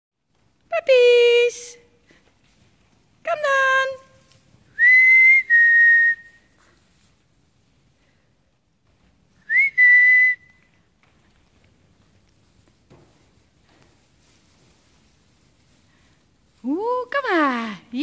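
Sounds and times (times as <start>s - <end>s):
high whistle calls: 4.8s - 6.6s, 9.4s - 10.6s.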